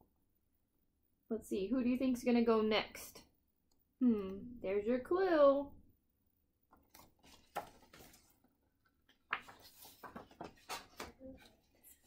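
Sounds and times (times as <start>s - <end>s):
faint paper rustling: 6.7s - 12.0s.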